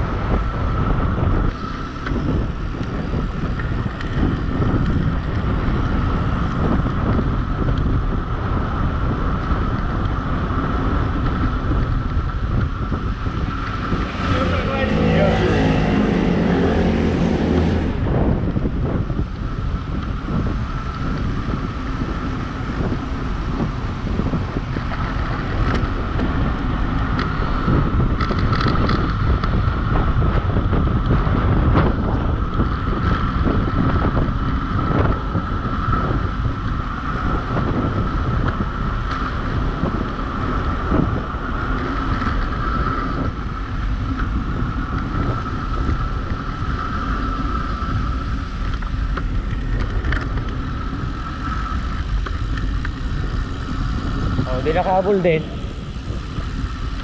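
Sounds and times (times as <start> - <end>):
wind buffeting microphone: 0.0 - 57.0
steady high whine: 12.0 - 19.4, 51.7 - 57.0.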